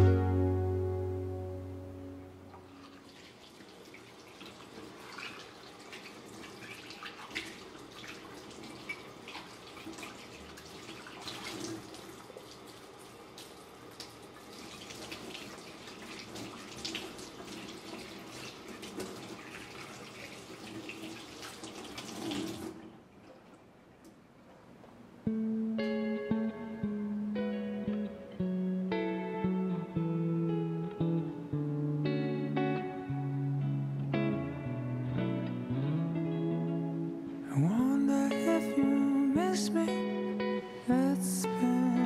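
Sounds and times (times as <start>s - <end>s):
tap water running: 2.5s - 23.7s.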